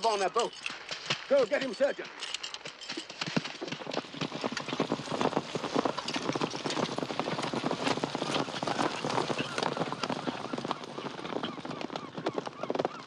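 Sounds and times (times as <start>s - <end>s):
horse hooves clopping: 0.0s - 13.0s.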